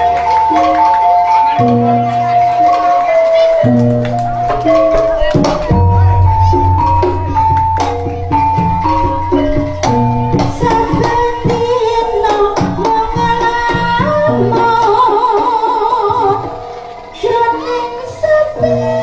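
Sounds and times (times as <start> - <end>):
metallophones and gongs: 0.0 - 19.0
drum strokes: 3.8 - 17.4
person singing: 4.1 - 19.0.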